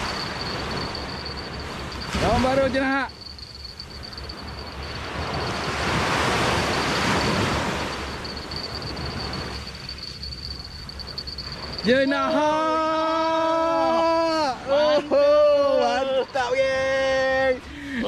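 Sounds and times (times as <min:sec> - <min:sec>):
sea waves breaking on beach: 0:00.0 - 0:15.1.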